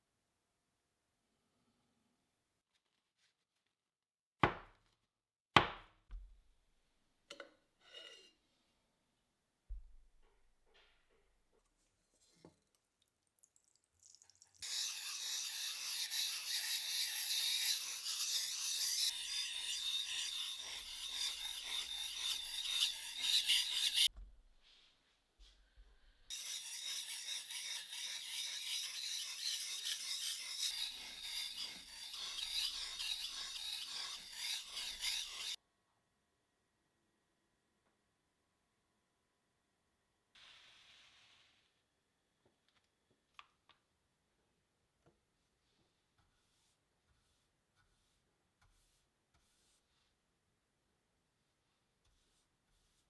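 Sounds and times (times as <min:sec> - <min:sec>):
knife scraping on whetstone: 0:07.8 - 0:08.4, 0:14.6 - 0:24.1, 0:26.3 - 0:35.6, 0:46.2 - 0:49.9.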